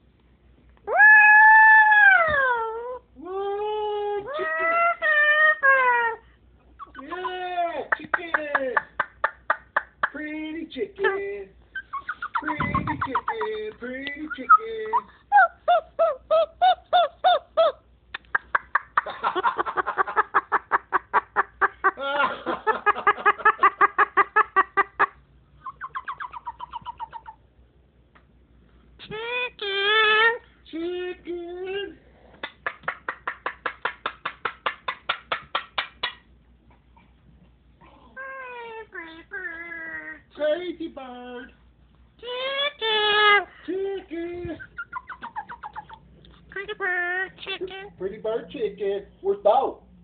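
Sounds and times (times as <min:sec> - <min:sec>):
cockatoo chattering: 0:06.7 - 0:10.2, 0:11.7 - 0:19.1, 0:23.2 - 0:27.4, 0:37.8 - 0:40.3, 0:44.6 - 0:47.7.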